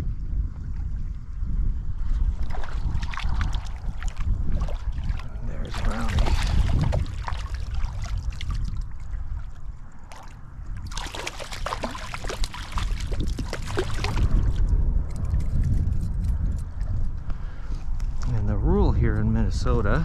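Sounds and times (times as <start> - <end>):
wind buffeting microphone: 0.0 - 20.0
water splashing: 2.2 - 14.7.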